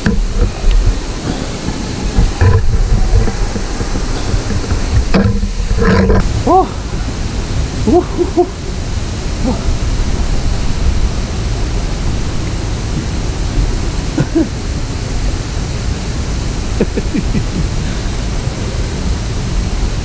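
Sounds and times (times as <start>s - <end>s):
mountain stream rushing: 0.0s - 20.0s.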